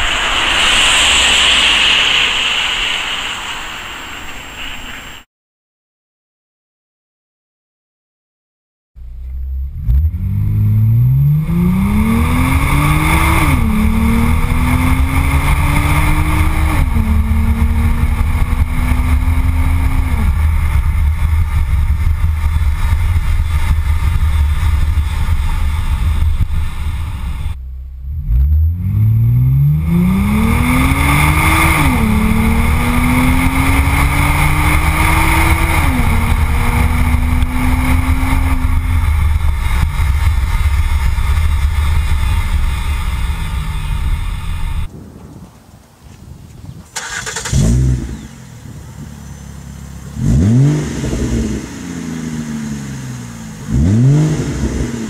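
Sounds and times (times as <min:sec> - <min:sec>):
wind and road noise: 0:00.0 - 0:05.3, 0:09.0 - 0:55.0
car engine accelerating through gears: 0:09.2 - 0:44.9, 0:47.0 - 0:55.0
wind rumble on microphone: 0:11.4 - 0:27.6, 0:29.5 - 0:51.9.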